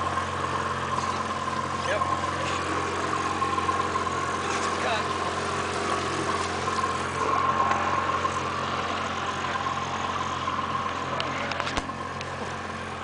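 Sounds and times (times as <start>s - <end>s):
boat engine humming: 0.0s - 13.0s.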